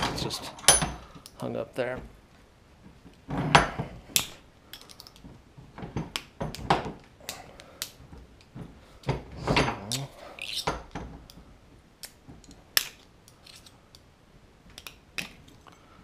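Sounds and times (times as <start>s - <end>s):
metal tools clicking and knocking: 0.0s - 1.3s.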